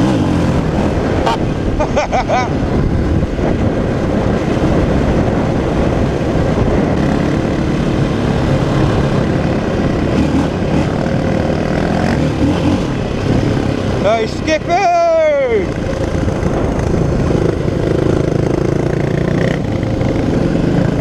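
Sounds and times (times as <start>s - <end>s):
wind rush on microphone: 0.0s - 21.0s
dirt bike engine running: 15.2s - 21.0s.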